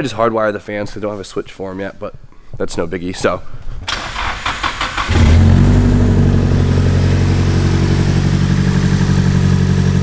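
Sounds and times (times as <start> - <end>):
car engine starting and idling: 3.9 - 10.0.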